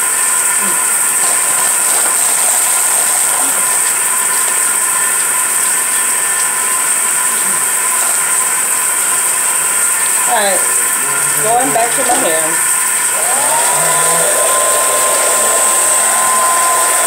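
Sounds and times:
hair dryer running: 0.3 - 4.2, 12.9 - 17.0.

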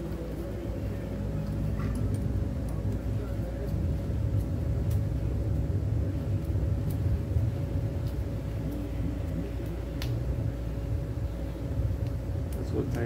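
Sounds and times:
faint hum: 0.0 - 13.0
low rumble: 0.0 - 13.0
light ticks: 9.6 - 10.2.

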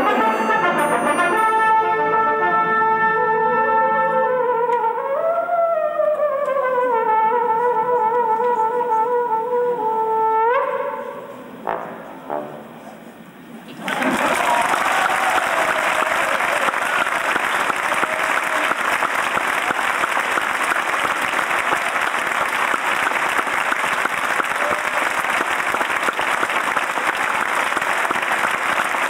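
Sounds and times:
audience applauding: 13.8 - 29.0.

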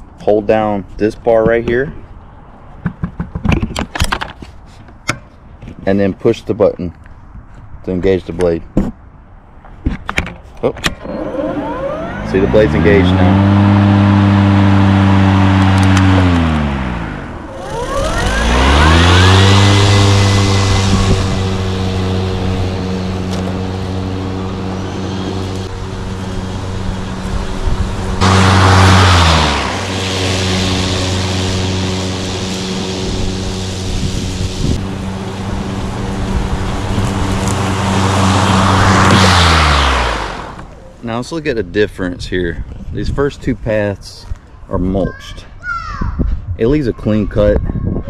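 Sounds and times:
electric lawn mower cutting grass: 11.0 - 40.8
high whine: 11.0 - 41.0.

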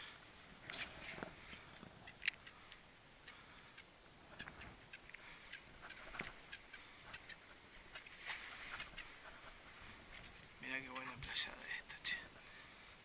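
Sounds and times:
faint small clicks and ticks: 1.5 - 7.3.

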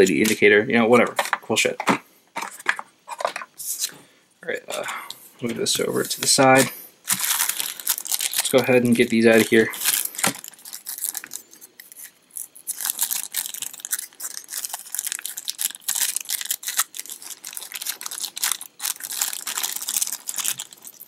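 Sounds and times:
plastic bags crinkling: 5.9 - 21.0.

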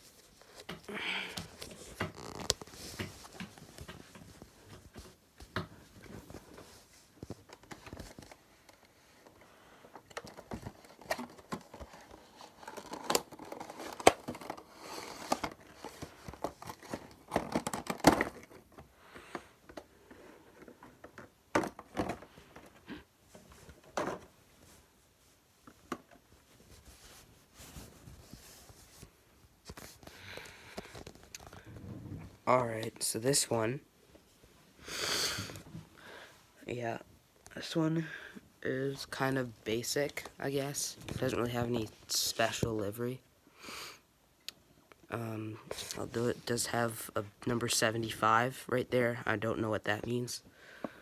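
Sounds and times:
packaging crinkling: 10.1 - 18.8.

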